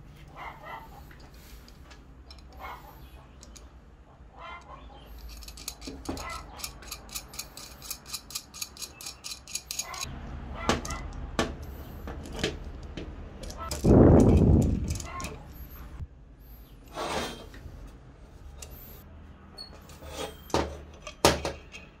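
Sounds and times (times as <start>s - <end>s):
nut clicking along bolt: 3.4s - 3.7s, 5.1s - 10.1s.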